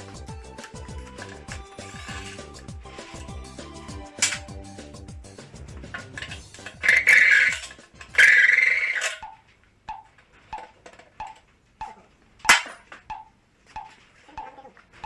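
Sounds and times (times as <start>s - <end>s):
plastic sheeting crinkling: 0.6s - 3.3s.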